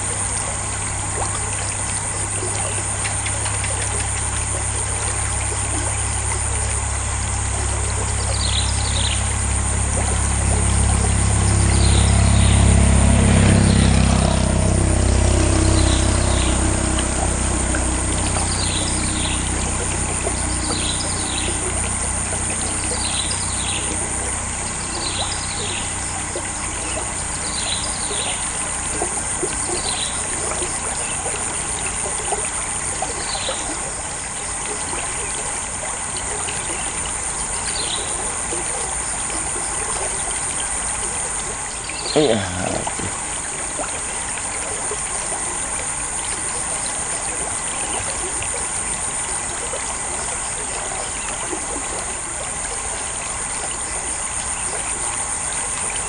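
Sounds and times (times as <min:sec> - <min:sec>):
water trickling through culvert: 0:00.0 - 0:56.0
vehicle passing: 0:09.4 - 0:31.5.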